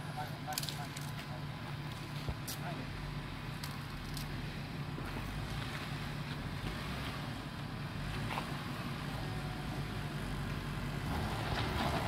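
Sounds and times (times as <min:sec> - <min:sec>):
engine running at low revs: 0:00.0 - 0:12.0.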